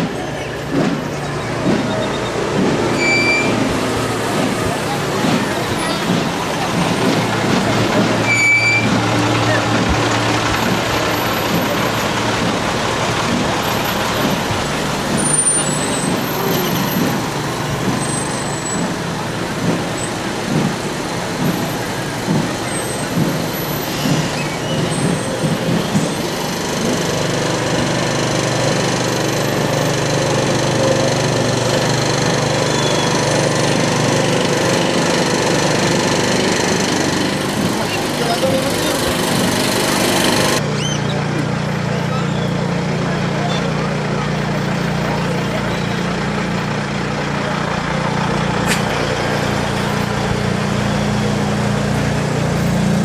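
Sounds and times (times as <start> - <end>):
diesel truck engine running: 0.0 - 53.0.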